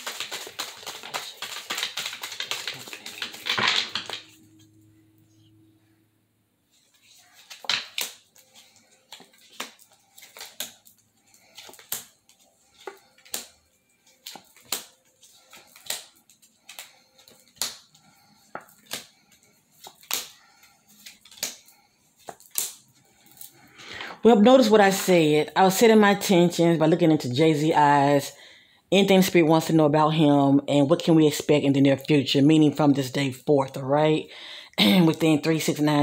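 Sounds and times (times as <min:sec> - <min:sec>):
card rustle: 0:00.0 - 0:04.4, 0:06.7 - 0:24.0
cards slapping onto wooden desk: 0:00.0 - 0:04.4, 0:07.5 - 0:08.3, 0:15.5 - 0:17.8.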